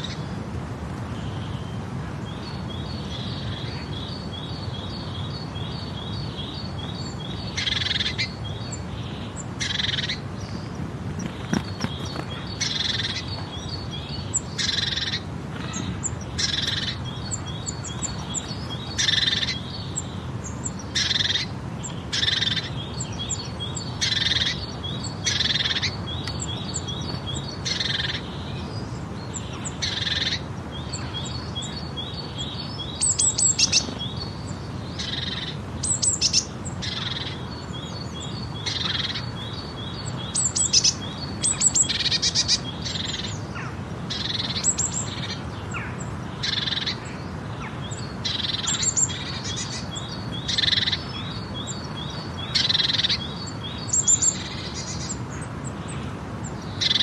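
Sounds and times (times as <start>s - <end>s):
birds chirping and calling: 0.0s - 0.4s, 1.1s - 57.0s
low background hiss: 0.0s - 57.0s
bird trills: 6.4s - 10.2s, 11.2s - 28.3s, 35.0s - 56.0s, 56.8s - 57.0s.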